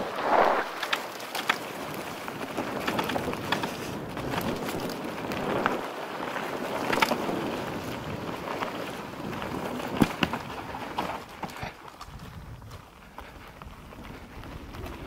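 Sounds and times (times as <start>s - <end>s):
wind rushing over microphone: 0.0s - 1.0s
bike rattles and knocks: 0.8s - 15.0s.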